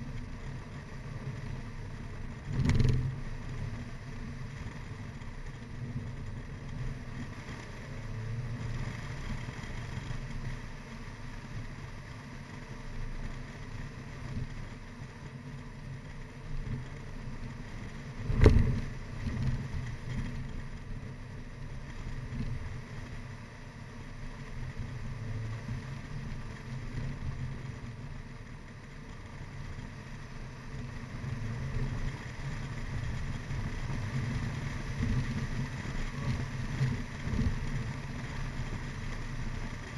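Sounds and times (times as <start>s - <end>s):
car engine running: 0.0s - 39.9s
road noise: 0.0s - 39.9s
car hitting a bump: 18.2s - 19.7s.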